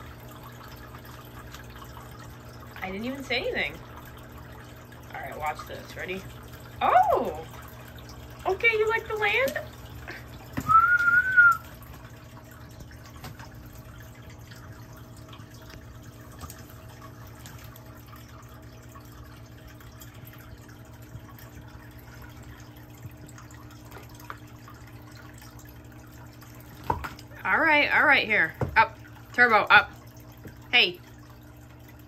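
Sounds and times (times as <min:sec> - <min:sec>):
pool filter hum: 0:00.0 - 0:32.0
water trickling: 0:00.0 - 0:32.0
short whistle: 0:10.7 - 0:11.7.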